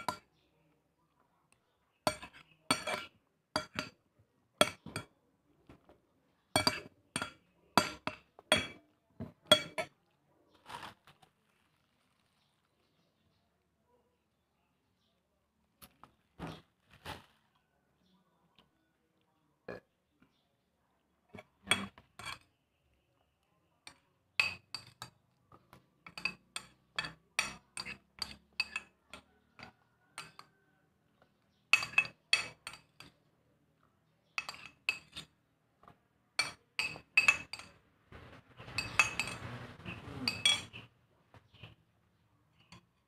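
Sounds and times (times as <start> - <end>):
spoon clinking on ceramic plate: 0.0 - 0.3, 2.0 - 4.0, 4.6 - 5.1, 6.5 - 8.8, 9.4 - 9.9, 21.4 - 22.5, 23.9 - 25.2, 26.0 - 30.6, 31.7 - 33.2, 34.4 - 35.4, 36.4 - 37.8, 38.7 - 40.9.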